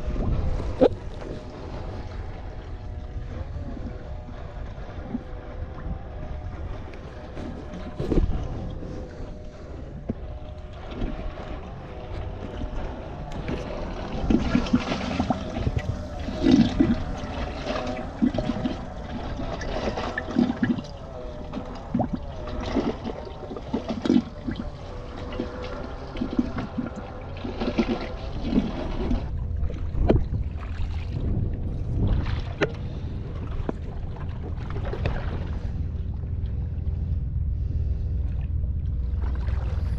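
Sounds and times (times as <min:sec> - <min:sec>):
water sloshing and trickling: 0:00.0 - 0:39.9.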